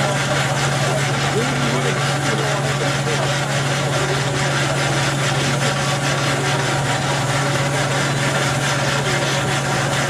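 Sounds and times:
steady low hum: 0:00.0 - 0:10.0
steam engine exhaust beats: 0:00.0 - 0:10.0.

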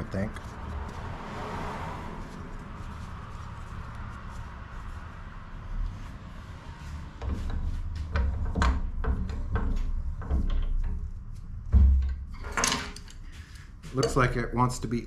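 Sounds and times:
metal knocking against vise: 0:07.2 - 0:11.1.

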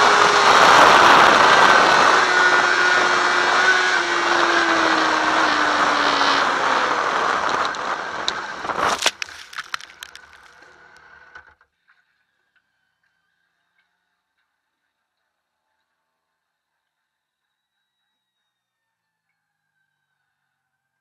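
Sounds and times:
wind noise: 0:00.0 - 0:10.3
motorcycle engine running: 0:00.0 - 0:11.6
motorcycle crash knocks and scrapes: 0:08.7 - 0:11.6
clattering debris: 0:08.8 - 0:10.9.

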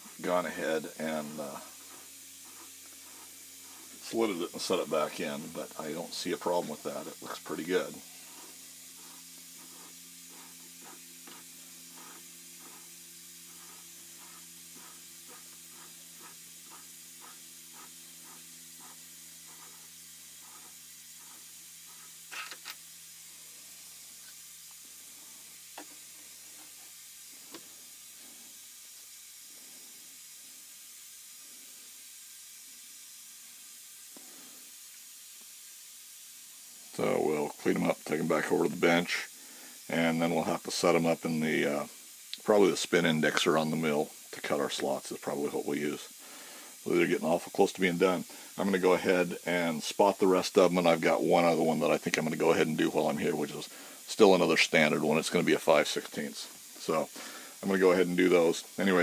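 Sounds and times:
machine hum: 0:00.0 - 0:28.5.

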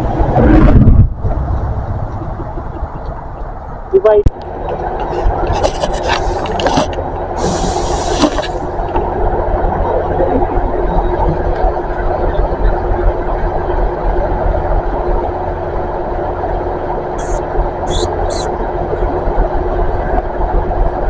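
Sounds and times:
diesel train engine idling: 0:01.2 - 0:21.0
short hiss: 0:07.4 - 0:08.6.

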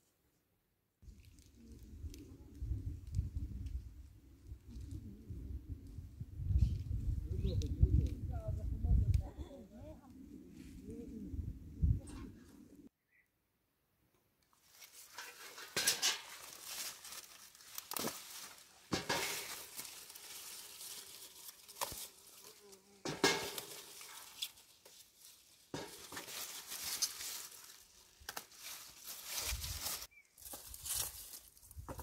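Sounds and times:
leaves rustling and crackling: 0:01.0 - 0:06.0, 0:14.5 - 0:32.0
stems snapping: 0:14.7 - 0:32.0.

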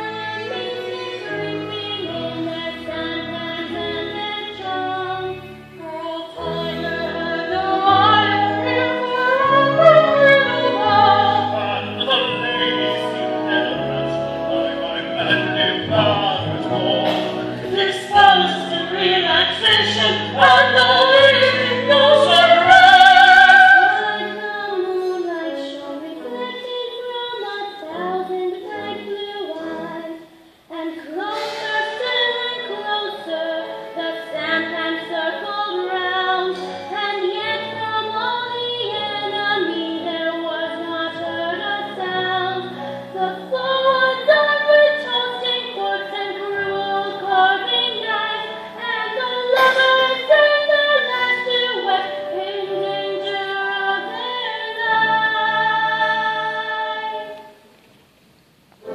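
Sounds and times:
woman singing operatically: 0:00.0 - 0:57.4
musical accompaniment: 0:00.0 - 0:58.9.

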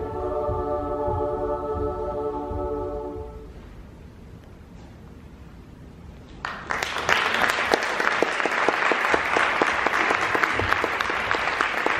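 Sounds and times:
audience applause: 0:06.4 - 0:11.9.

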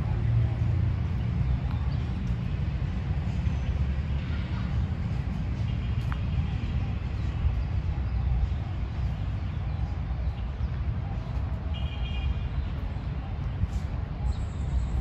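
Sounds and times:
steady low rumble: 0:00.0 - 0:11.7.

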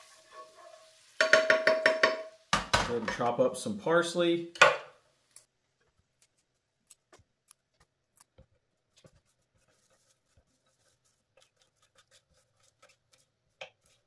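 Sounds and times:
parsley being picked apart: 0:06.2 - 0:08.4.

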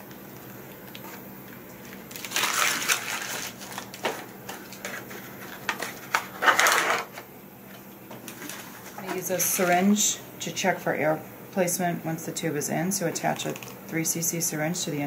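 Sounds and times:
plastic packaging crinkling: 0:01.8 - 0:07.2, 0:08.2 - 0:09.9, 0:13.4 - 0:13.8.

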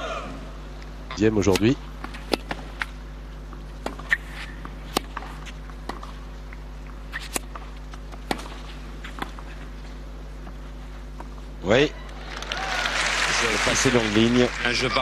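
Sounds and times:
low hum: 0:00.0 - 0:15.0
rackets hitting tennis ball: 0:01.4 - 0:11.5
ball bounces: 0:01.5 - 0:02.9, 0:03.5 - 0:09.5.

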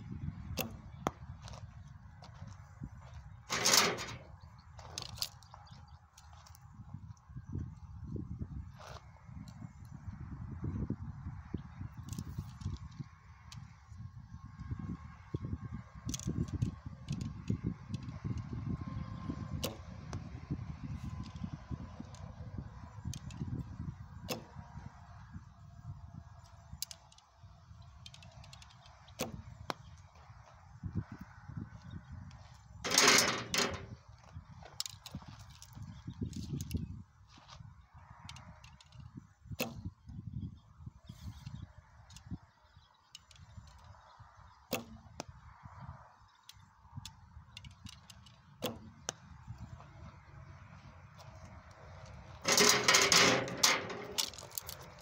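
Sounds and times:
wind rumble on microphone: 0:00.0 - 0:55.0
arrow handling clicks: 0:00.6 - 0:00.9
arrow striking target: 0:00.6 - 0:01.2, 0:24.2 - 0:24.6, 0:44.7 - 0:45.0, 0:48.6 - 0:49.2.

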